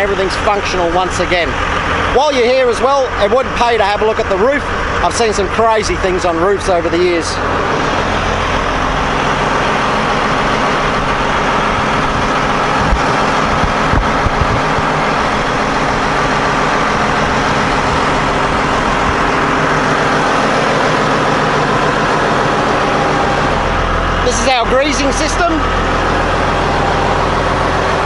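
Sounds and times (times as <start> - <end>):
diesel engine idling: 0.0 - 28.0
short low thumps: 11.8 - 15.4.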